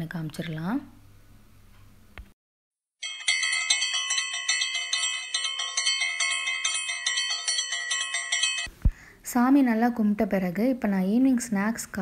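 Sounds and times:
hand bell rung rapidly: 3.0s - 8.7s.

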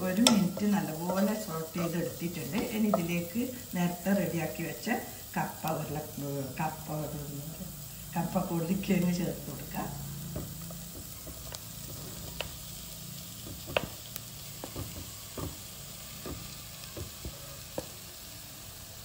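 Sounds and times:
masala sizzling in a pan: 0.0s - 19.0s
spoon knocking against pan: 0.2s - 1.5s, 2.4s - 3.2s.

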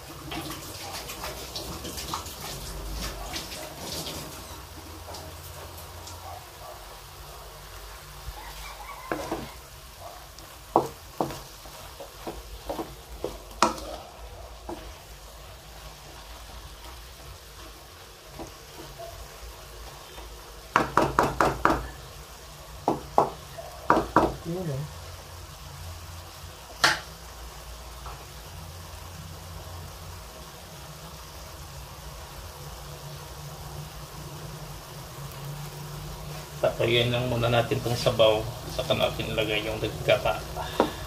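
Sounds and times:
low sizzle: 0.0s - 41.0s
spatula scraping wok: 7.9s - 20.6s.

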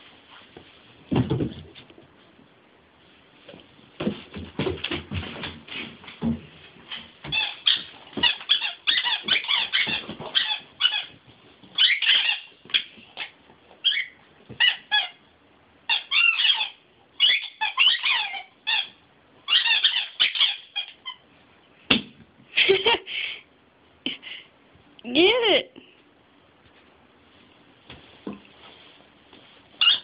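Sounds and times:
rubber squeaky toy squeaking: 7.3s - 11.2s, 11.8s - 15.2s, 15.9s - 21.2s, 29.8s - 30.0s.

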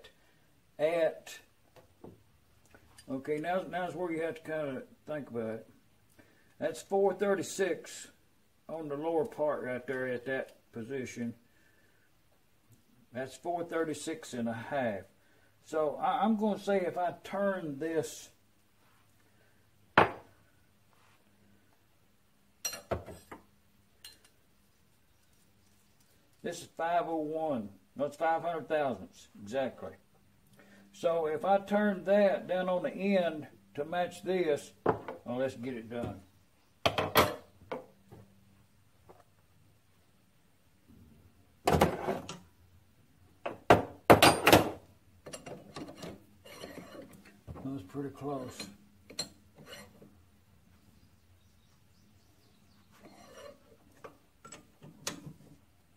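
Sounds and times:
metal clatter and scraping: 45.3s - 47.4s, 48.4s - 50.0s
metal tools clinking on bench: 48.4s - 50.0s.

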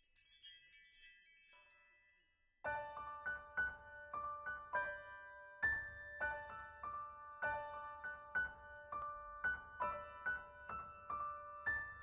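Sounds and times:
high tinkling chime: 0.0s - 2.7s
gentle piano music: 2.6s - 12.0s.

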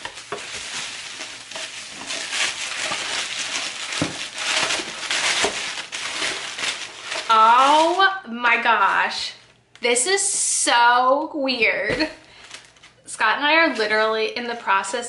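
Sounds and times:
bubble wrap crinkling: 0.0s - 9.5s, 11.9s - 13.0s.

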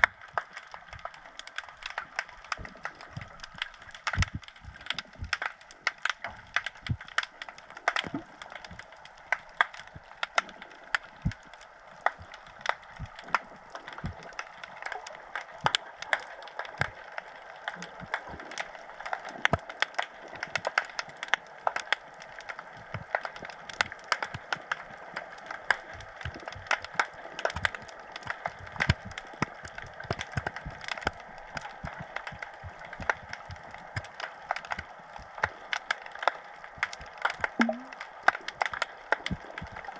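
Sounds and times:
underwater clicks and crackles: 0.0s - 39.9s.

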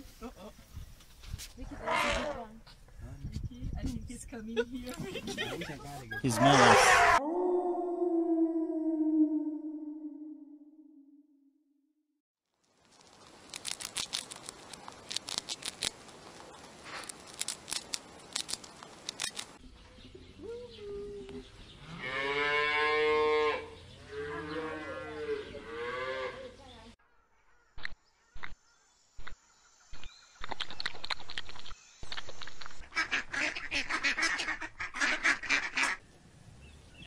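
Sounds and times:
cattle mooing: 6.4s - 7.2s
hamster nibbling food: 13.0s - 19.4s.

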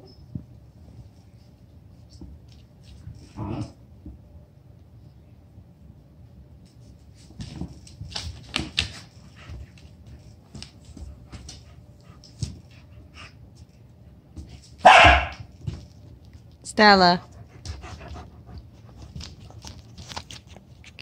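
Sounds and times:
dogs scuffling: 6.6s - 13.0s
dog claws scrabbling on wooden floor: 6.7s - 12.8s, 17.6s - 21.0s
dog barking: 14.8s - 15.4s.

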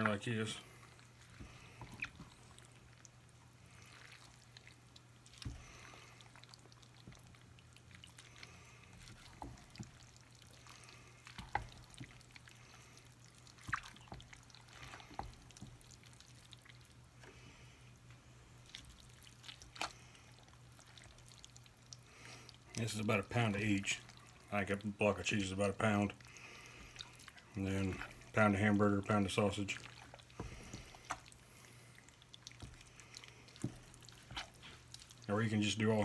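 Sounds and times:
spoon stirring wet squishing: 0.0s - 36.0s.

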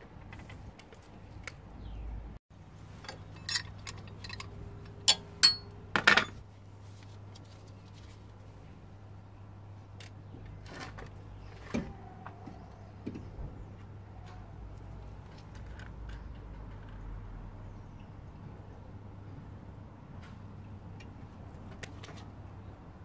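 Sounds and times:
metallic clinks and knocks: 3.0s - 6.4s.

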